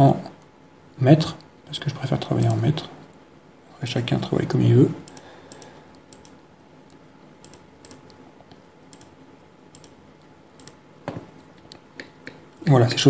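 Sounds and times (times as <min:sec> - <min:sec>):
computer mouse clicking: 0:05.0 - 0:10.8.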